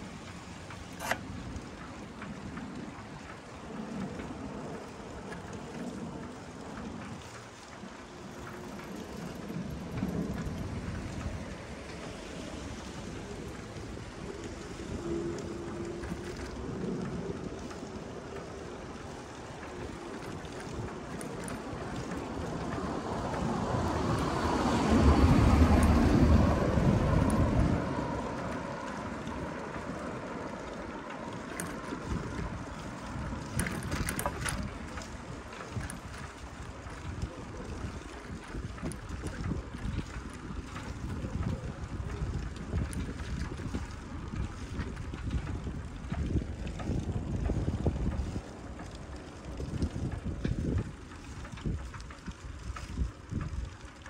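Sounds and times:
wind buffeting the microphone: 0:00.0 - 0:54.0
street noise: 0:07.9 - 0:46.6.

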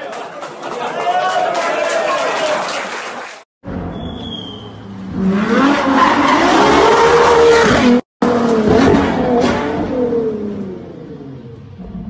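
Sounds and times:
brief high squeal: 0:03.8 - 0:04.8
sports car engine revving: 0:04.8 - 0:12.0.

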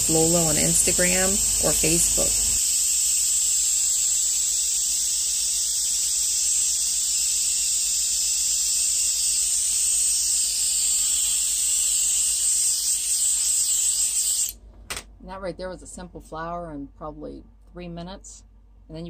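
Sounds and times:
airbrush hissing air: 0:00.0 - 0:14.6.

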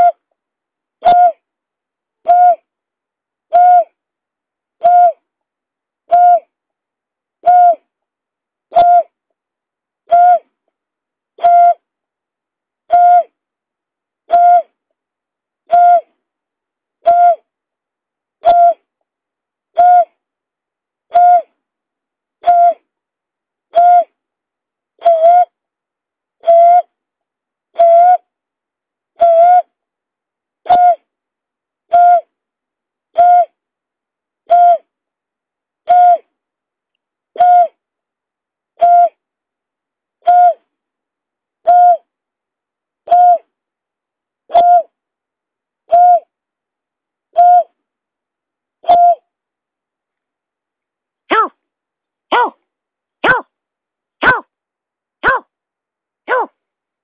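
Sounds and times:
bird hooting: 0:01.0 - 0:01.4, 0:02.3 - 0:02.7, 0:03.5 - 0:03.9, 0:04.8 - 0:05.2, 0:06.1 - 0:06.5, 0:07.4 - 0:07.8, 0:08.7 - 0:09.1, 0:10.1 - 0:10.4, 0:12.9 - 0:13.3, 0:14.3 - 0:14.7, 0:15.7 - 0:16.1, 0:17.0 - 0:17.4, 0:19.8 - 0:20.1, 0:21.1 - 0:21.5, 0:22.4 - 0:22.8, 0:23.7 - 0:24.1, 0:25.0 - 0:25.5, 0:27.8 - 0:28.2, 0:30.7 - 0:31.0, 0:31.9 - 0:32.3, 0:33.2 - 0:33.6, 0:34.5 - 0:34.9, 0:35.9 - 0:36.3, 0:37.4 - 0:37.8, 0:38.8 - 0:39.2, 0:40.2 - 0:40.6, 0:41.7 - 0:42.1, 0:43.1 - 0:43.5, 0:44.5 - 0:44.9, 0:45.9 - 0:46.3, 0:47.4 - 0:47.8, 0:48.8 - 0:49.2, 0:51.3 - 0:51.5, 0:53.2 - 0:53.5, 0:54.2 - 0:54.5, 0:55.2 - 0:55.4, 0:56.3 - 0:56.5.

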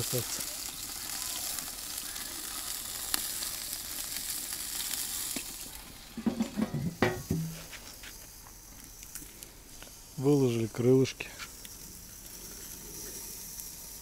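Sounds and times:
chicken wings sizzling on a grate: 0:00.0 - 0:14.0
metal lid clanking: 0:06.2 - 0:07.7.

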